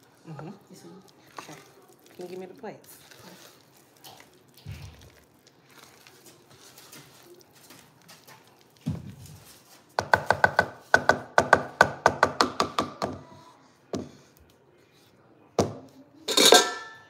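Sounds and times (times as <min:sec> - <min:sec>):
spatula scraping pot: 0:00.0 - 0:08.8
spatula knocking in metal saucepan: 0:10.0 - 0:13.2.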